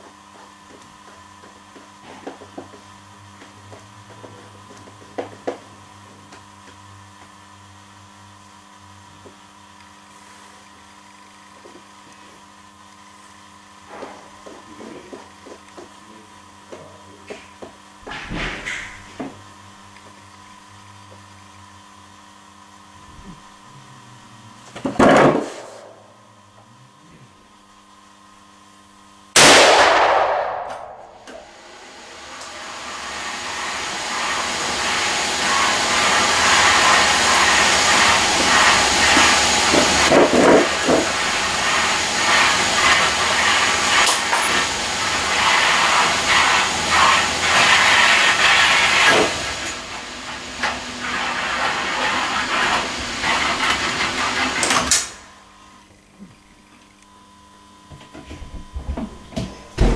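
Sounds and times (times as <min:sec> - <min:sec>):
rifle shot: 0:29.4 - 0:31.1.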